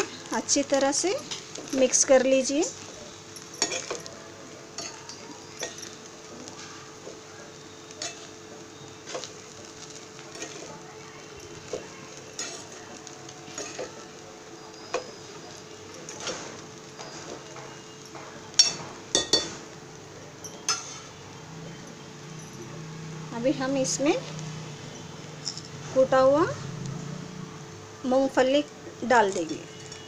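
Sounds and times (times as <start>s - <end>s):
faint sizzle: 0.0s - 30.0s
spatula scraping frying pan: 8.0s - 10.8s, 11.5s - 14.2s
sharp clanks against pan: 16.1s - 19.6s.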